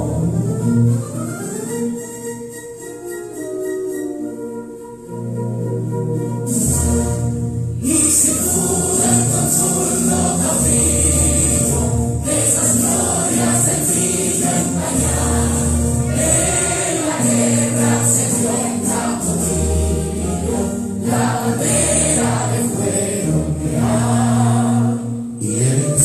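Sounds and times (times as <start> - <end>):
instrumental accompaniment: 0.0 - 26.0
choir singing: 6.6 - 26.0.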